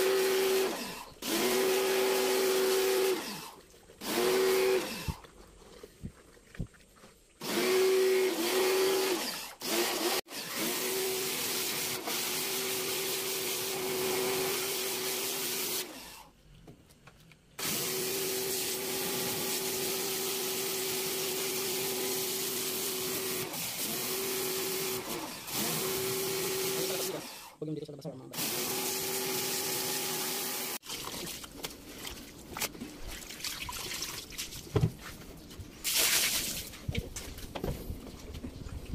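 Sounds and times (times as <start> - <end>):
pressure washer motor hum: 0.0 - 5.2, 7.4 - 16.2, 17.6 - 27.5, 28.4 - 30.8
water spray hissing: 35.8 - 36.8.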